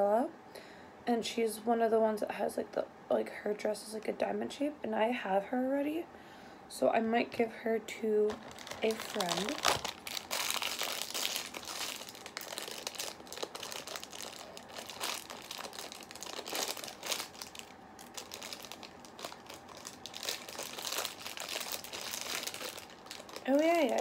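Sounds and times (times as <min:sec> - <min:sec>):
wrapper crinkling: 0:08.3 - 0:24.0.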